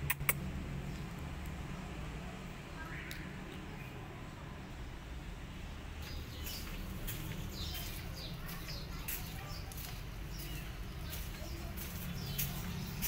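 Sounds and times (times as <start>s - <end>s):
small birds chirping: 5.8s - 13.0s.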